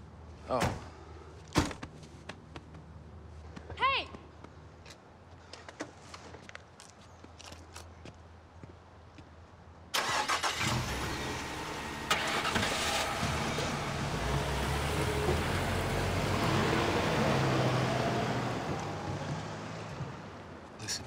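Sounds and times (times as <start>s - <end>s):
pickup truck engine driving past: 10.6s - 20.5s.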